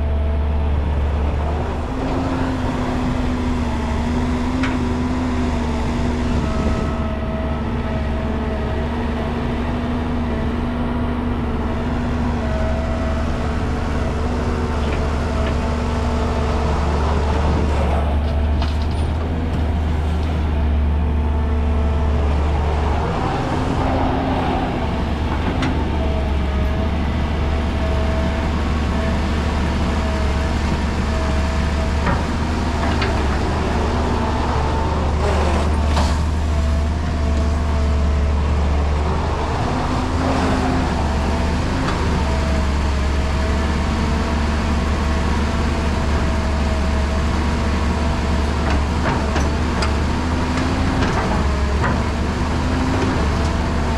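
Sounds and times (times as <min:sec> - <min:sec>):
excavator diesel engine: 0:00.0 - 0:53.9
hydraulic whine: 0:00.9 - 0:10.4.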